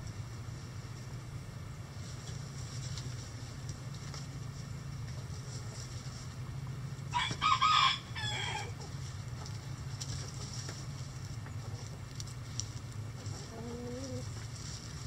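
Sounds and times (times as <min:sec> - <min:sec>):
steady low hum: 0:00.0 - 0:15.0
rooster crowing: 0:07.1 - 0:08.8.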